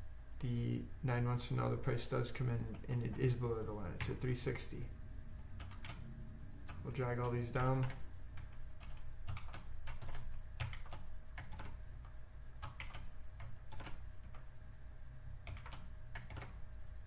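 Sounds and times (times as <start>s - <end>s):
faint steady hum: 0.0s - 17.0s
typing on keyboard: 5.6s - 6.0s, 6.7s - 11.8s, 12.6s - 14.4s, 15.4s - 16.6s.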